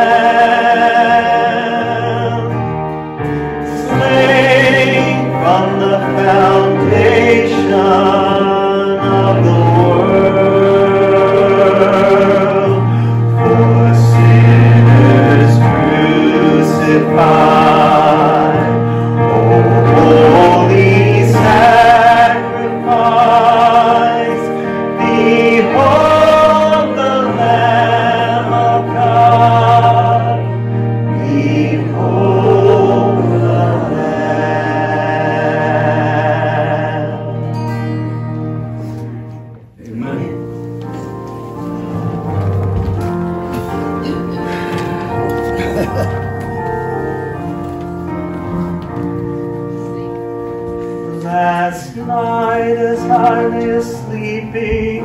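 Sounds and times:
man singing gospel: 0.0s - 2.8s, 3.6s - 37.4s, 51.1s - 55.0s
held bass notes accompaniment: 0.0s - 55.0s.

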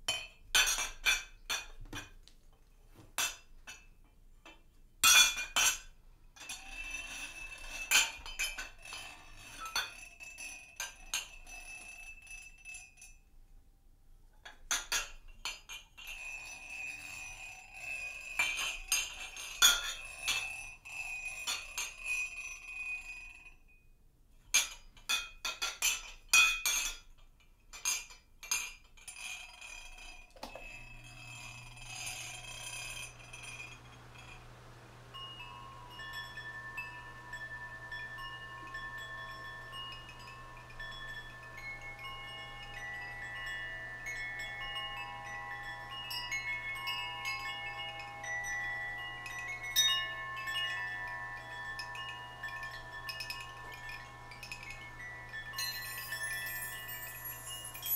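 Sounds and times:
metal and glass tapping: 30.4s - 45.9s, 49.2s - 57.9s
faint low hum: 30.4s - 57.9s
high ringing tone: 30.4s - 57.9s.

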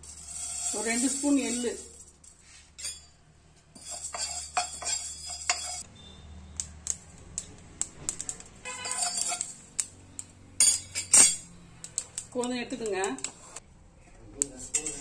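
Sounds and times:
steel ladle stirring against pan: 0.0s - 5.9s, 8.1s - 9.9s, 14.6s - 15.0s
seeds popping in a pan: 6.0s - 10.3s, 11.8s - 13.4s.

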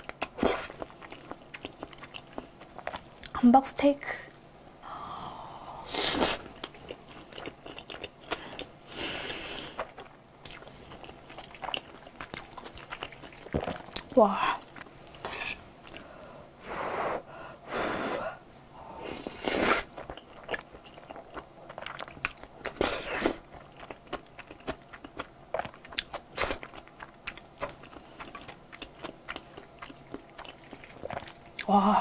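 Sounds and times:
wet chewing mouth clicks: 0.0s - 3.4s, 19.9s - 31.7s.

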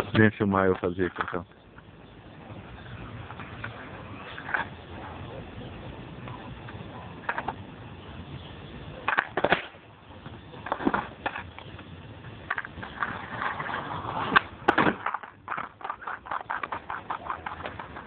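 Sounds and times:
skateboard knocking on road: 0.0s - 5.5s, 6.2s - 18.0s
skateboard rolling on asphalt: 0.0s - 18.0s
skateboard clattering down: 2.7s - 5.4s, 6.2s - 7.6s, 9.0s - 18.0s.

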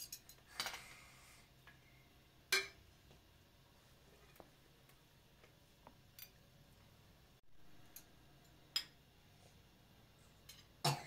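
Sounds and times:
cutlery clicking on metal plates: 0.0s - 0.8s.

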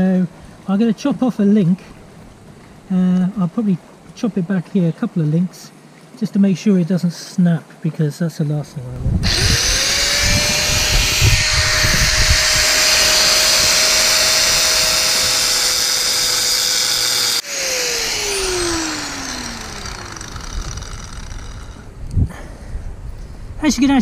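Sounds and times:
angle grinder cutting metal: 9.2s - 21.9s
grinder disc spinning down: 9.2s - 21.9s.

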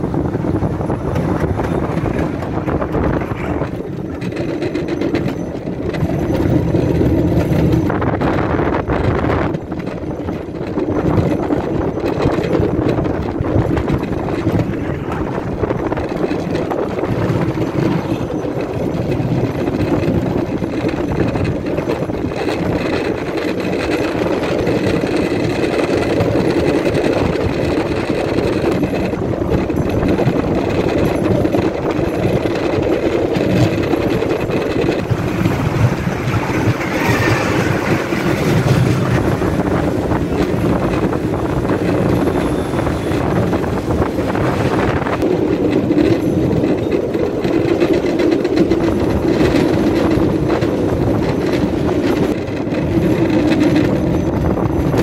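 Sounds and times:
wheels running on rails: 0.0s - 55.0s
small engine running: 17.2s - 55.0s.

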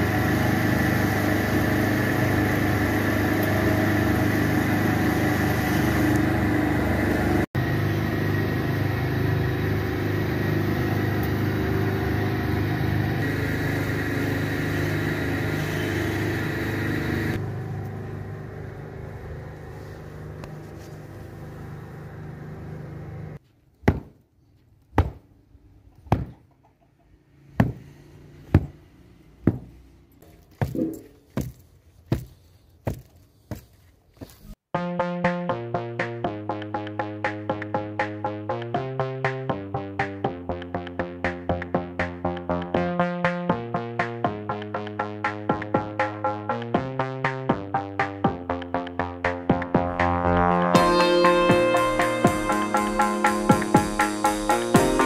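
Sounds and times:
wool-carding machine running: 0.0s - 23.4s
stick beating a mattress: 23.8s - 24.2s, 24.9s - 25.3s, 26.0s - 26.4s, 27.6s - 27.9s, 28.5s - 28.8s, 29.4s - 29.8s, 30.6s - 33.7s.

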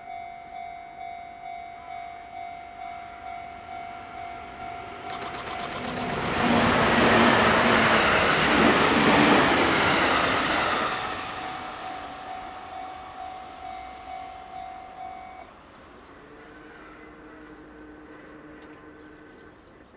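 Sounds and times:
level crossing warning bell: 0.0s - 8.4s, 9.7s - 15.8s
electric train passing: 0.0s - 19.9s.

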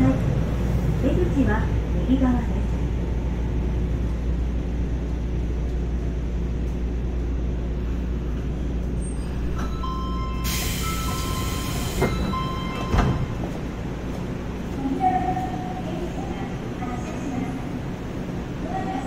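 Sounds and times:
subway train rumble: 0.0s - 19.0s
train knocks: 9.5s - 14.3s
air hiss: 10.4s - 12.2s.

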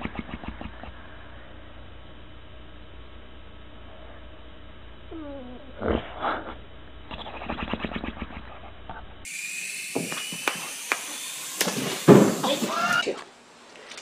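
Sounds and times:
dog whimpering in sleep: 5.1s - 8.5s
toy quadcopter whine: 9.2s - 13.1s.

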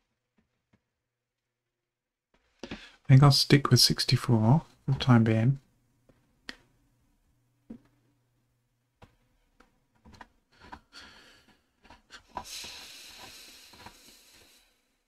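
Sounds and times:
person breathing out heavily: 10.7s - 11.6s, 12.2s - 14.9s.

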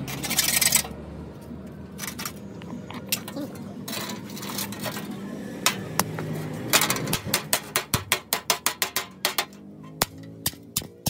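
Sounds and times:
hammer striking iron sheet: 6.7s - 11.0s.

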